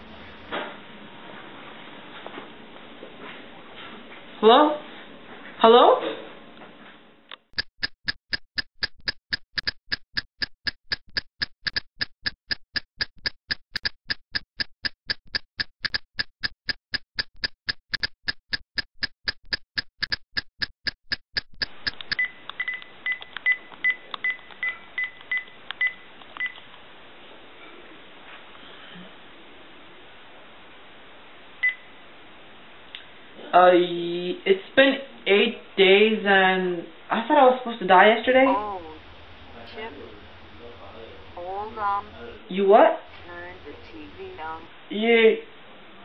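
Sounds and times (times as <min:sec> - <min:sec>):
clock ticking fast: 0:07.5 - 0:22.2.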